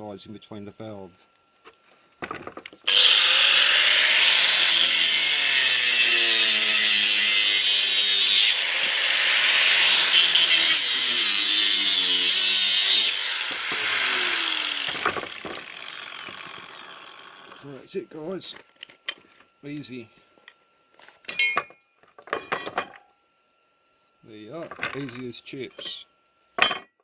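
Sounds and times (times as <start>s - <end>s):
motor winding down whine: 2.8s - 7.0s, 7.8s - 17.7s
angle grinder cutting metal: 2.8s - 17.6s.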